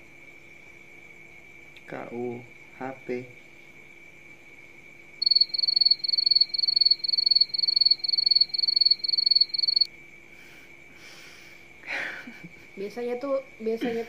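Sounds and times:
cricket chirping: 0.0s - 14.0s.

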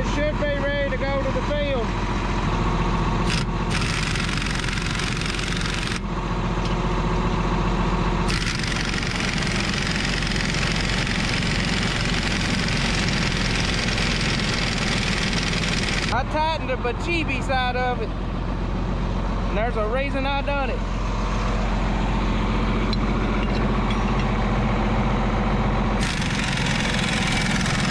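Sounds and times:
diesel tractor engine idling: 0.0s - 27.9s.

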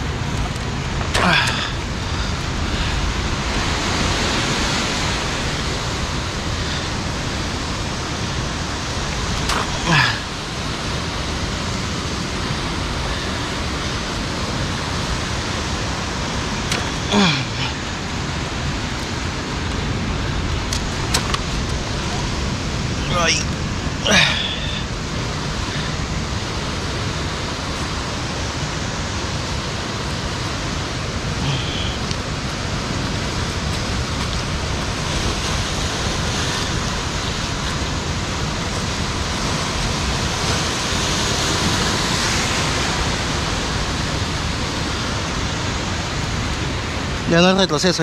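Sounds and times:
sea surf against cliffs: 0.0s - 48.0s.

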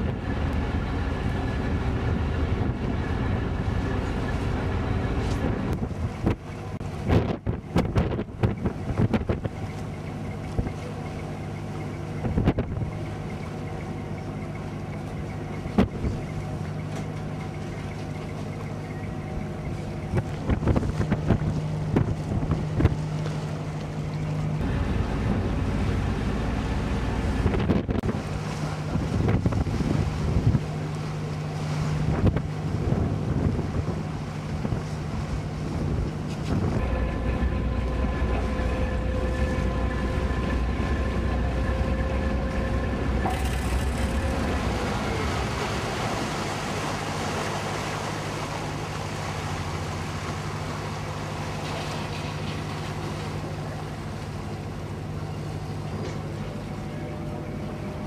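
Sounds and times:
deep rumble: 0.0s - 58.0s
ferry engine humming: 0.0s - 58.0s
steady whine: 0.0s - 58.0s
water noise: 0.0s - 58.0s
wind on microphone: 5.1s - 9.7s, 12.2s - 13.0s, 20.0s - 23.2s, 24.6s - 30.9s, 31.9s - 47.2s.

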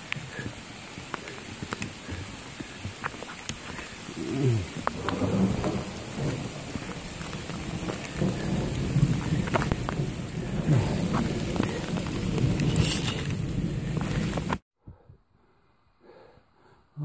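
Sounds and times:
rain pattering on plastic bag: 0.0s - 14.6s.

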